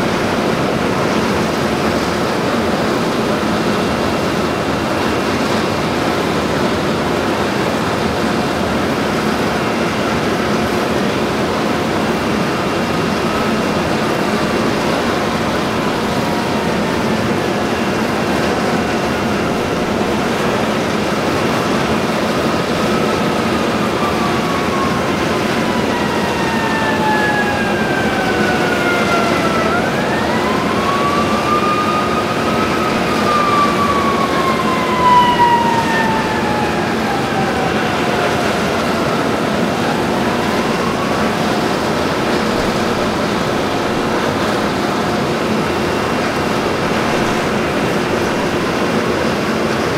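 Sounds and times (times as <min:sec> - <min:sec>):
distant siren wailing: 0:00.0 - 0:49.9
exhaust fan roaring: 0:00.0 - 0:49.9.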